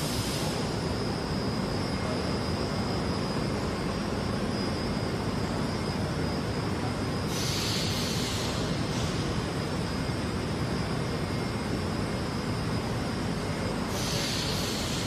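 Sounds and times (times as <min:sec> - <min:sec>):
machinery hum with high whine: 0:00.0 - 0:15.0
hiss: 0:07.3 - 0:09.3, 0:13.9 - 0:15.0.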